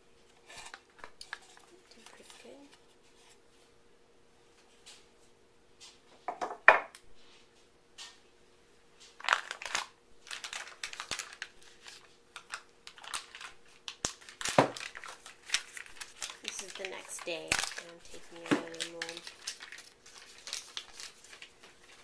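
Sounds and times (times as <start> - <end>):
paper crinkling and rustling: 0.3 - 3.4, 9.0 - 22.0.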